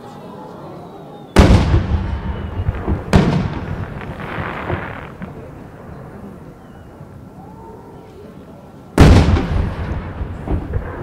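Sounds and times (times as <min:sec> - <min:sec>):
firework bangs with echo: 0:01.4 - 0:06.0, 0:09.0 - 0:11.0.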